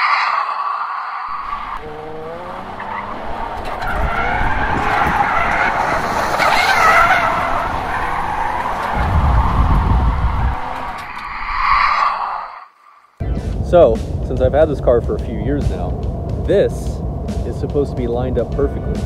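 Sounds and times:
heavy low rumble: 0.6s - 12.5s, 13.2s - 19.0s
car engine revving: 1.3s - 11.4s
tyres skidding on pavement: 1.3s - 12.4s.

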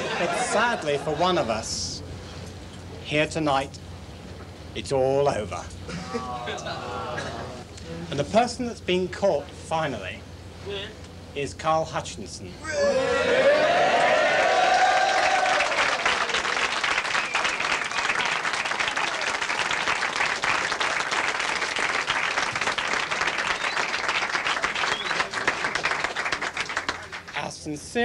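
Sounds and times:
men cheering: 5.9s - 7.6s, 12.6s - 16.7s
crowd applauding: 12.9s - 27.4s.

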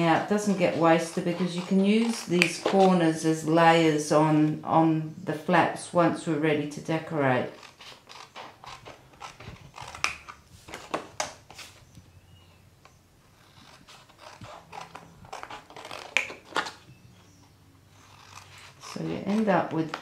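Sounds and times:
card rustling: 13.4s - 17.4s.

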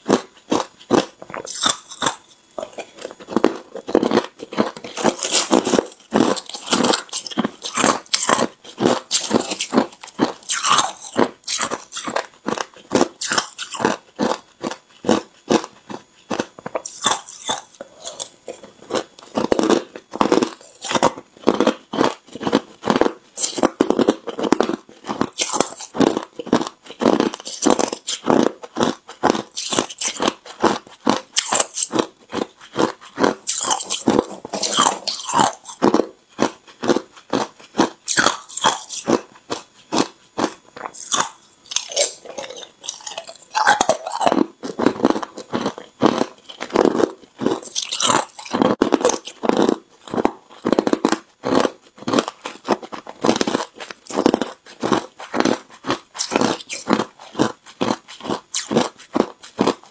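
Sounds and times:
person chewing ice crunching: 0.0s - 59.9s.

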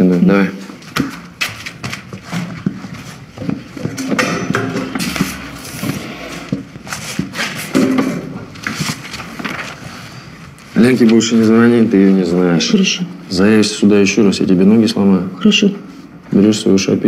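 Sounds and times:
chair being moved: 3.8s - 10.0s.

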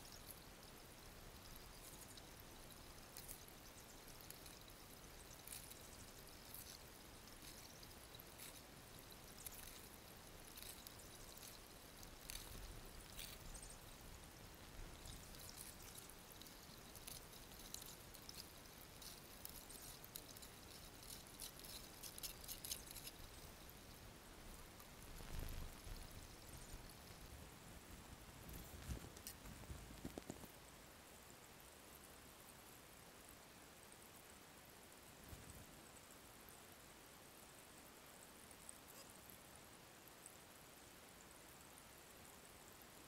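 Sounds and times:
small splashes and drips: 0.0s - 27.2s
stream water trickling: 0.0s - 27.7s.

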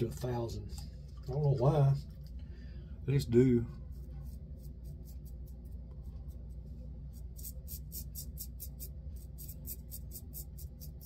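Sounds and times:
razor scraping stubble: 3.9s - 11.0s.

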